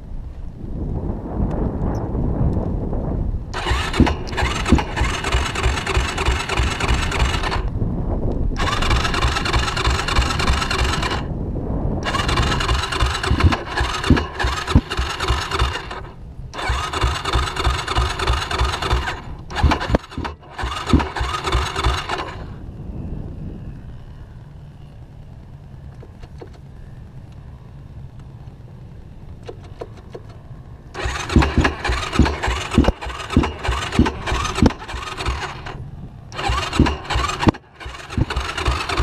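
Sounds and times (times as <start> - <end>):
quad engine revving: 3.5 - 7.7, 8.6 - 11.3, 12.0 - 22.6, 29.4 - 39.0.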